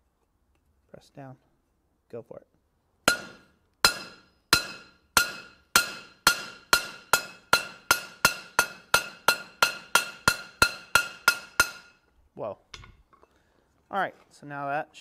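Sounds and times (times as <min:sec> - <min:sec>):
hammer striking rivet on anvil: 0:03.1 - 0:12.0, 0:12.7 - 0:13.0.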